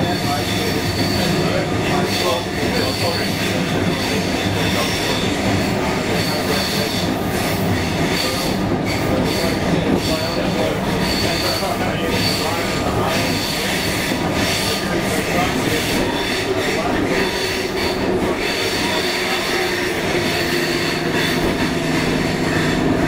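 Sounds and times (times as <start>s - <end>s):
high-pitched wheel squeal: 0.0s - 23.0s
train wheels rumbling: 0.0s - 23.0s.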